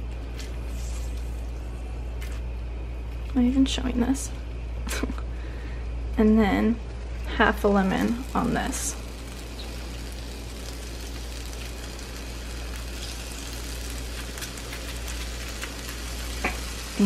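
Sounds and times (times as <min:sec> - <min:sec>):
low hum: 0:00.0 - 0:17.0
vegetables sizzling in a frying pan: 0:06.6 - 0:17.0.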